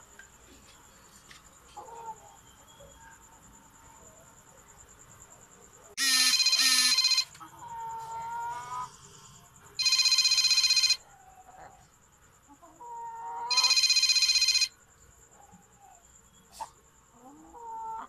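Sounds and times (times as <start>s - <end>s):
chicken calls: 1.7s - 3.0s, 6.0s - 9.0s, 12.5s - 13.9s, 15.4s - 18.0s
phone ringtone trilling: 6.0s - 7.3s, 9.8s - 11.0s, 13.5s - 14.8s.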